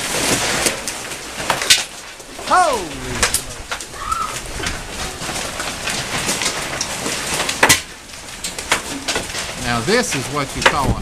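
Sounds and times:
hail and rain pattering: 0.0 - 11.0
hailstone cracking sharply: 1.4 - 9.8.

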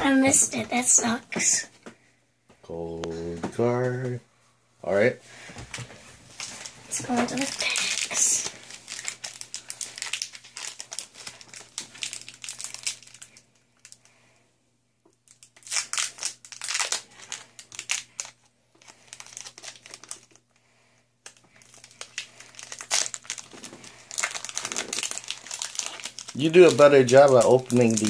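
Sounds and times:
foil wrapper crinkling: 6.4 - 14.2, 15.2 - 20.6, 21.2 - 28.0.

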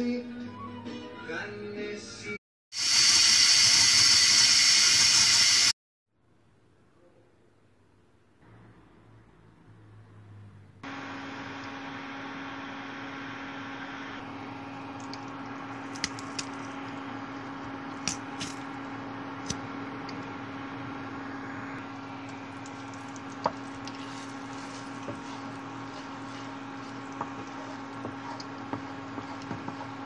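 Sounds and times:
steady low hum: 12.8 - 30.0
fat sizzling in a frying pan: 21.6 - 30.0
wooden spatula knocking pan: 23.3 - 30.0.

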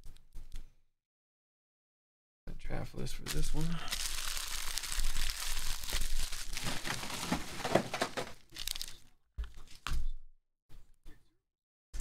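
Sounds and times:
foil wrapper crinkling: 3.3 - 9.9.

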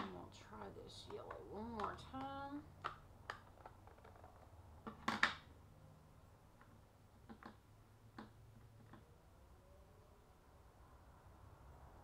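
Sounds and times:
light clicks and taps: 0.9 - 5.0.

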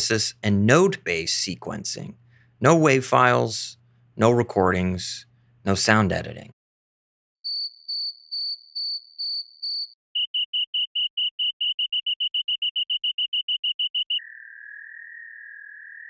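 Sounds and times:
synthesizer chirps: 7.4 - 16.0
high synthesizer beeps: 9.3 - 14.4.

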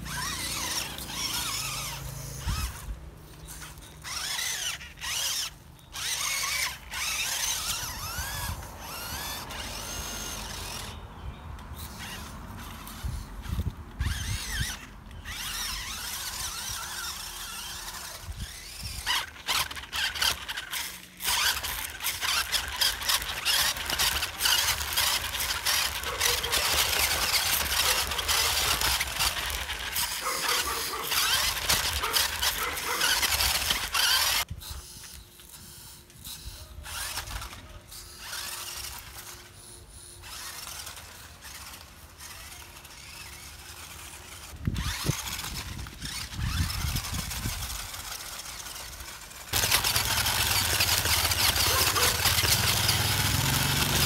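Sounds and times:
wheels crackling over rough ground: 0.0 - 39.6, 40.2 - 54.0
toy car motor whine: 0.0 - 54.0.

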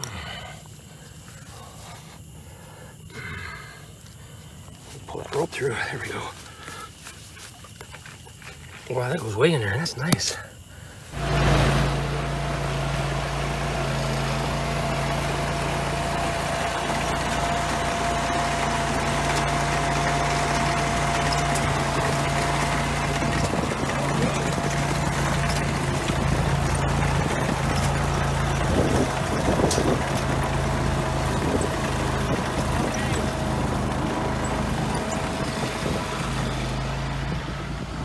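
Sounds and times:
digging chain cutting soil: 11.1 - 37.4
trencher engine running: 11.1 - 38.0.

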